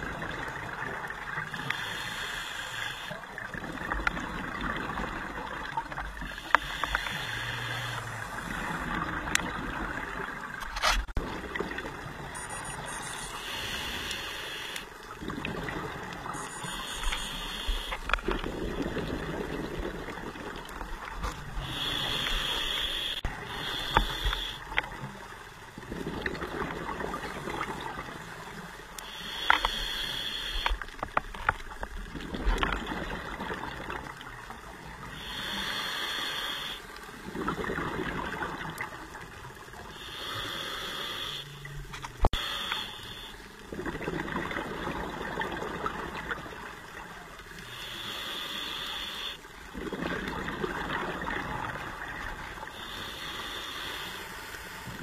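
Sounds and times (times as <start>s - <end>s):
scuba regulator breathing: 1.6s - 3.2s, 6.2s - 9.0s, 12.4s - 15.0s, 16.4s - 18.3s, 21.6s - 24.8s, 29.0s - 31.0s, 35.0s - 37.0s, 39.9s - 43.6s, 47.6s - 49.5s, 52.6s - 55.0s.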